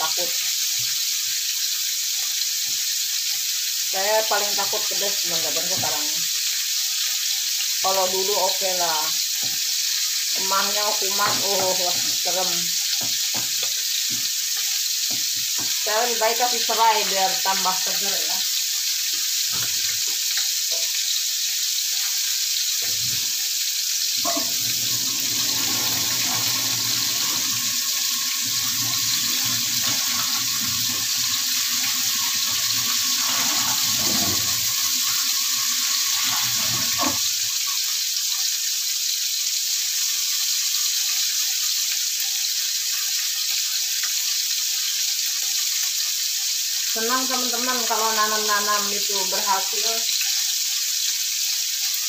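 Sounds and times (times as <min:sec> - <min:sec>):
oil sizzling in a wok: 0:00.0 - 0:52.0.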